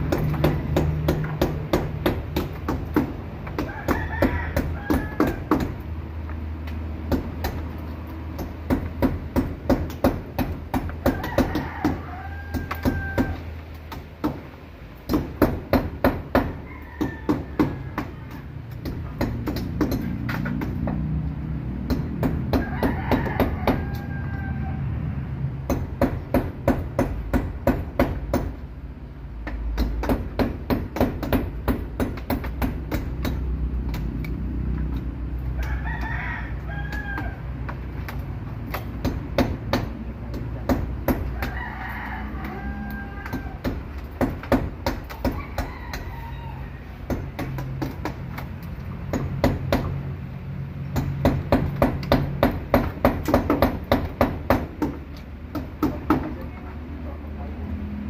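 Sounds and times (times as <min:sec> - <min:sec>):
rooster crowing: 0:03.6 - 0:05.7, 0:11.0 - 0:13.6, 0:16.4 - 0:18.6, 0:22.5 - 0:25.2, 0:35.5 - 0:37.8, 0:41.2 - 0:43.8, 0:45.1 - 0:47.1.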